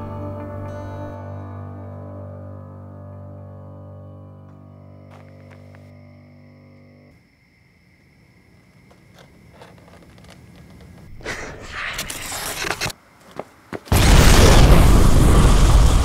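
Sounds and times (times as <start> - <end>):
bazooka blast: 13.9 - 16.0.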